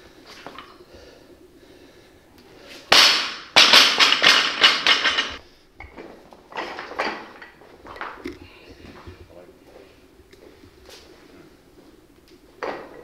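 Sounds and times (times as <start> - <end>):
barbell dropped on platform: 2.9 - 5.4
plates rattling and clattering: 3.6 - 5.4.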